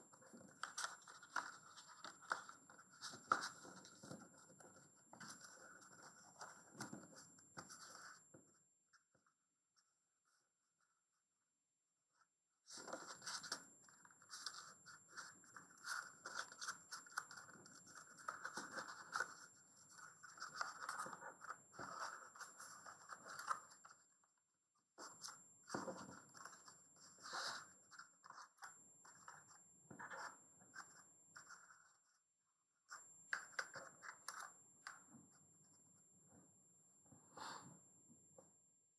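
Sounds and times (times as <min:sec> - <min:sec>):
paper rustling: 0:00.1 - 0:08.2, 0:12.7 - 0:23.8.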